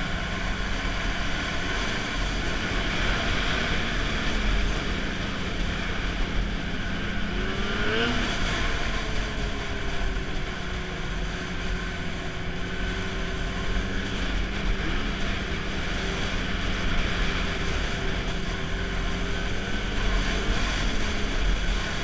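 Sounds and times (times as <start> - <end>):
rush of noise: 0.0 - 22.0
snowmobile engine running: 0.0 - 22.0.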